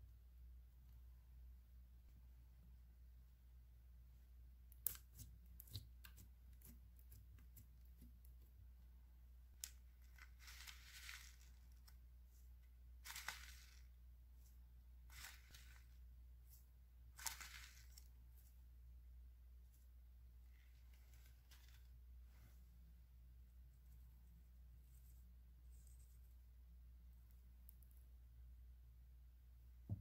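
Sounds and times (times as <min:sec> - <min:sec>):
foam beads pouring: 0:10.0 - 0:11.9, 0:13.0 - 0:13.9, 0:15.1 - 0:16.0, 0:17.2 - 0:18.0.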